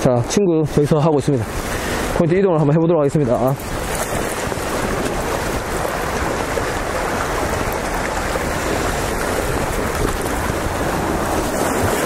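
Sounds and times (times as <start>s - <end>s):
sea water washing over rocks: 3.0s - 12.0s.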